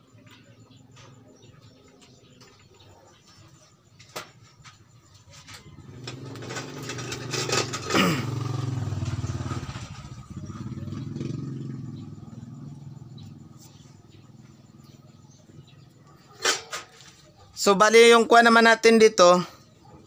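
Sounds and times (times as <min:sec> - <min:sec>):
passing vehicle engine: 0:05.6 - 0:15.8.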